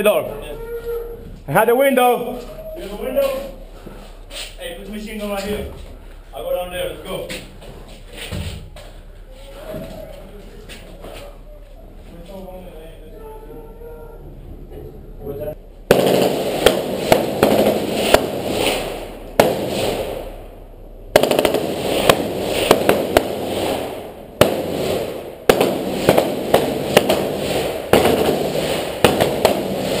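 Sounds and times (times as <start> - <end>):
rifle gunshots echoing indoors: 15.9 - 30.0.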